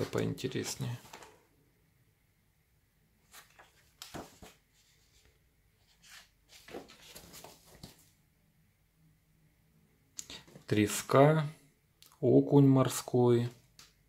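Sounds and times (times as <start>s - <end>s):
book pages rustling: 0.0s - 1.4s, 3.2s - 8.2s.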